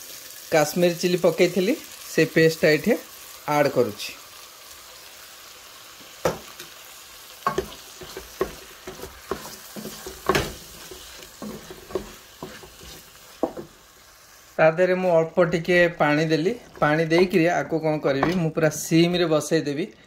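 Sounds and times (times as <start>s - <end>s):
onions sizzling in a pot: 0.0s - 19.9s
spoon knocking and scraping pot: 7.4s - 13.8s, 16.6s - 17.5s, 18.1s - 18.5s.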